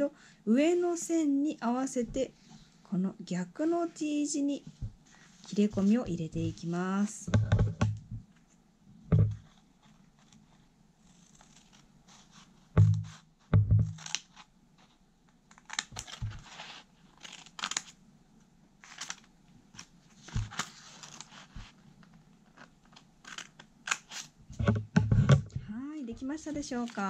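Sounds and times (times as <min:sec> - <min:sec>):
dull thumps: 0:07.3 - 0:08.3, 0:09.1 - 0:09.5, 0:12.8 - 0:14.0, 0:24.5 - 0:26.7
paper rustling: 0:18.8 - 0:24.3, 0:26.4 - 0:27.0
scissors snipping paper: 0:26.5 - 0:27.0.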